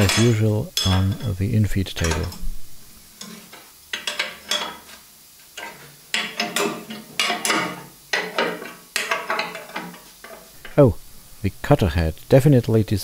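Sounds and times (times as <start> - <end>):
wrench clinking on metal: 0.0 - 1.3, 2.0 - 2.5, 3.9 - 4.9, 5.6 - 10.8.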